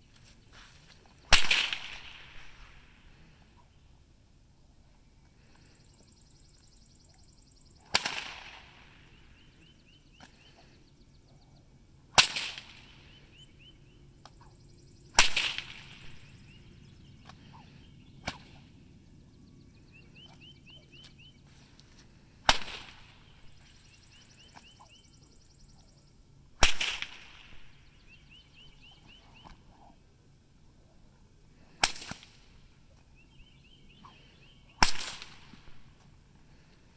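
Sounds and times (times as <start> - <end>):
whip cracking: 1.3 - 2.8, 7.8 - 8.9, 12.2 - 13.0, 15.2 - 16.2, 18.2 - 18.6, 22.5 - 23.2, 26.6 - 27.6, 31.7 - 32.6, 34.8 - 35.8.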